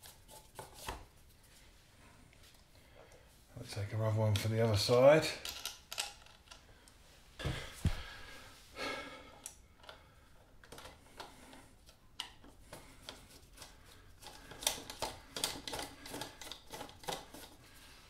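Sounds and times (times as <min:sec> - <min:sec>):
clicks and scrapes of screw: 0:05.4 - 0:06.7, 0:10.6 - 0:17.6.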